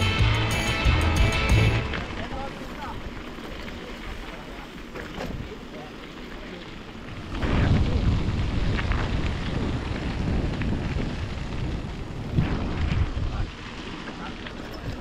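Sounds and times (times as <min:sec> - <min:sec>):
wind buffeting the microphone: 0:06.9 - 0:15.0.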